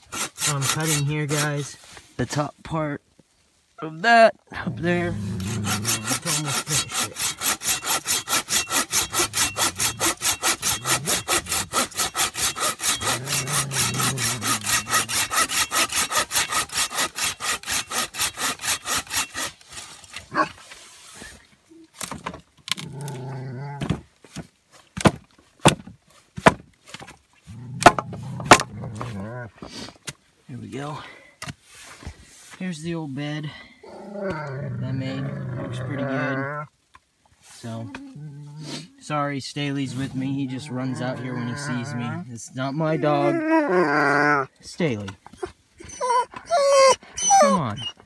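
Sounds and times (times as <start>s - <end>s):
hand saw cutting wood: 0.0s - 1.7s, 4.8s - 21.2s, 27.8s - 29.8s.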